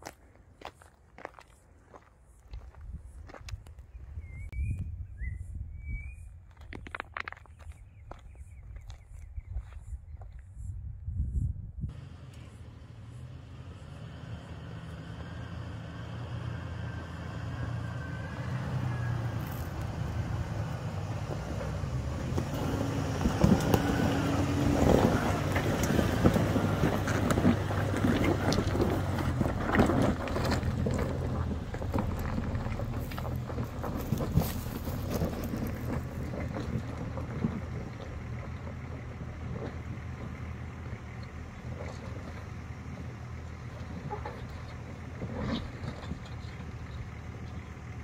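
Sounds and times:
vehicle engine running: 11.9 - 48.0.

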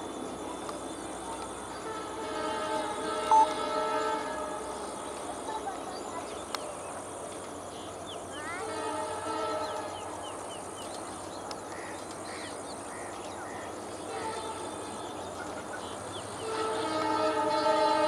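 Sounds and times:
train rumbling on track: 0.0 - 18.0
train horn blasts: 1.8 - 4.8, 8.6 - 10.0, 16.4 - 18.0.

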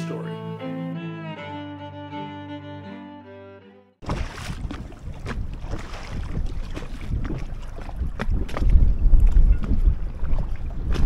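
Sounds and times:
cello and violin music: 0.0 - 4.0
wind buffeting microphone: 4.0 - 11.0.

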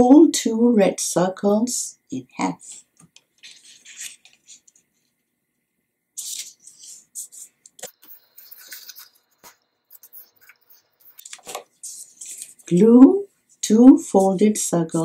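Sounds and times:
paper rustling and scraping: 3.4 - 5.2, 6.2 - 12.7.

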